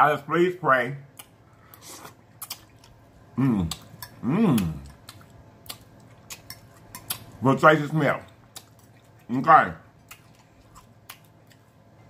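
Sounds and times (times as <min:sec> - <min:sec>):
chewing and lip-smacking: 0:01.1 - 0:12.0
man humming mmm: 0:03.4 - 0:05.0.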